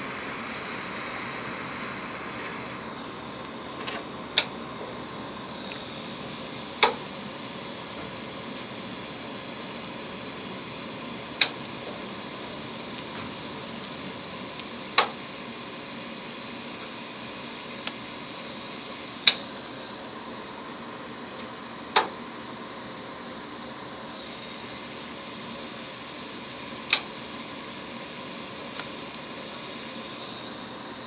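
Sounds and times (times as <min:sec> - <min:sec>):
hard drive whining: 0:00.0 - 0:31.0
sharp clicks: 0:26.9 - 0:27.1.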